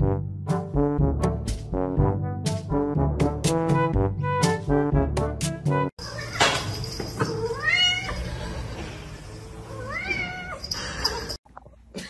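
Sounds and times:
cat meowing: 7.3 - 8.3, 9.7 - 10.6.

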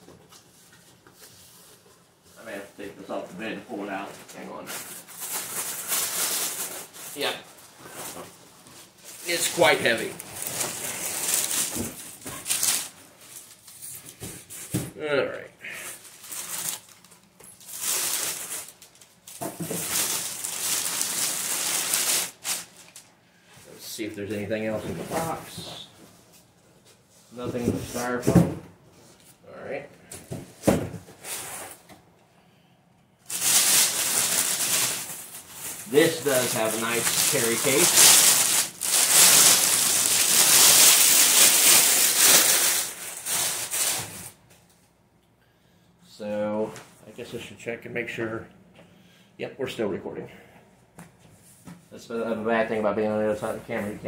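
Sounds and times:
plastic sleeve rustling and crinkling: 3.8 - 14.7, 15.7 - 23.1, 33.2 - 44.5.

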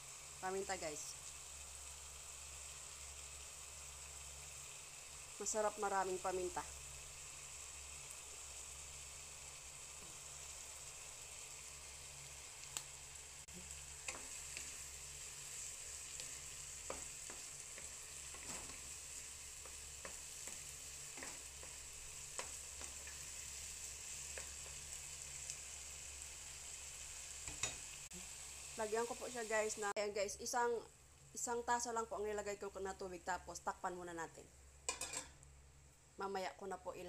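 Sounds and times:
meat sizzling in frying pan: 0.0 - 30.5
utensil tapping and scraping pan: 19.6 - 23.2.

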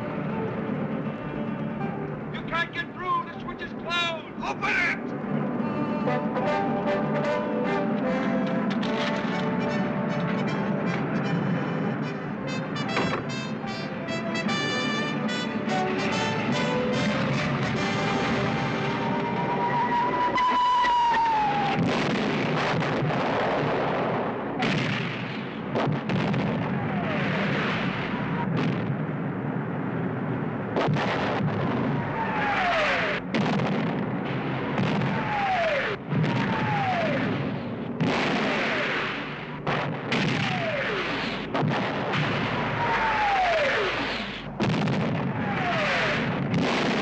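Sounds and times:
heavy explosions: 14.4 - 47.0
bombs whistling down: 16.6 - 23.5, 26.1 - 28.8, 30.8 - 47.0.

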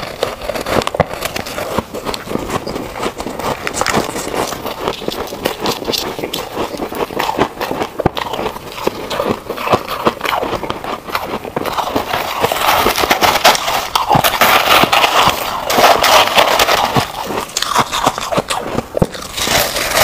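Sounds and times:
ice being chewed: 0.0 - 20.0
hands digging through crushed ice: 11.9 - 20.0.

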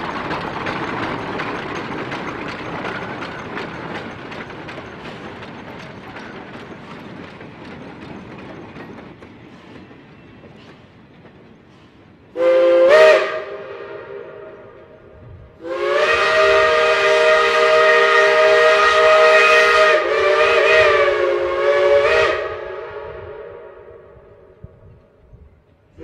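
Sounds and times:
steam locomotive chime whistle: 12.3 - 24.4.

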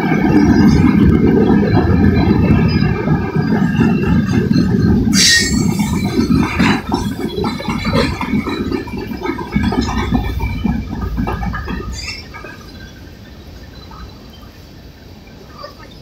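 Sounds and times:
clanks and rattles: 0.0 - 13.9
train wheels rumbling on rail: 0.0 - 16.0
high-pitched screech: 2.2 - 6.7.

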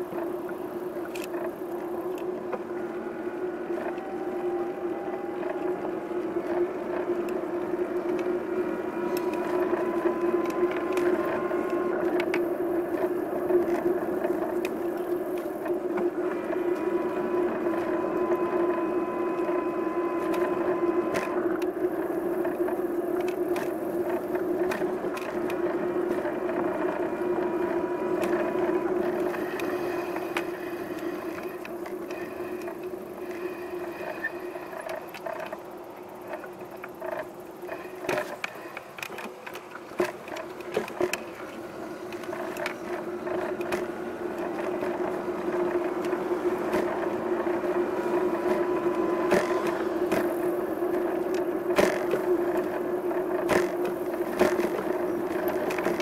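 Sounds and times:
bicycle clicks and rattles: 0.0 - 56.0
bicycle hum: 0.0 - 56.0.

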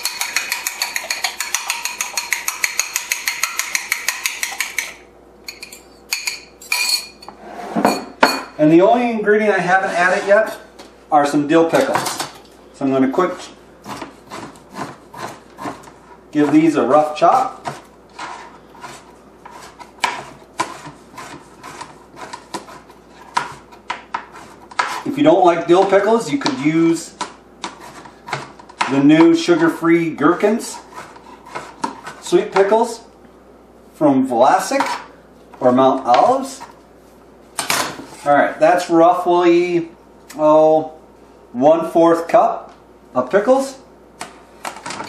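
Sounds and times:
whisk clicking against bowl: 0.0 - 5.0
knife chopping on cutting board: 13.8 - 16.6, 17.3 - 25.0.

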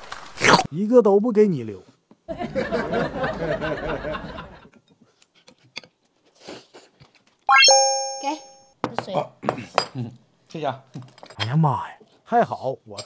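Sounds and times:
people laughing: 2.3 - 4.7
electronic chime: 7.5 - 8.6.

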